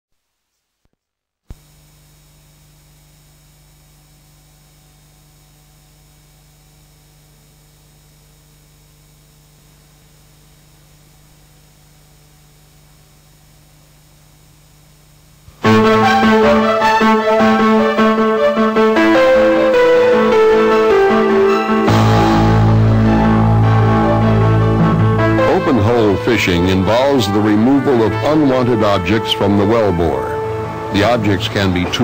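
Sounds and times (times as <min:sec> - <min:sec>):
low electrical hum: 0:00.2 - 0:32.0
music: 0:15.5 - 0:32.0.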